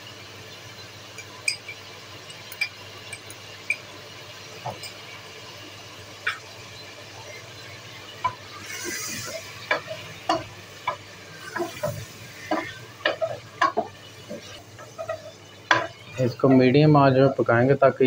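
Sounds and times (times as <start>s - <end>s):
oil frying sizzle: 0.0s - 18.0s
spoon scraping metal pot: 11.4s - 16.6s.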